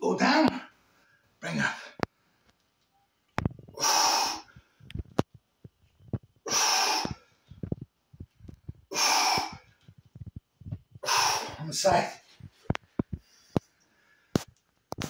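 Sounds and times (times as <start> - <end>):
man exhaling forcefully: 3.8 - 4.5, 6.5 - 7.2, 8.9 - 9.6, 11.0 - 11.6
small knocks and rustles: 12.3 - 15.0.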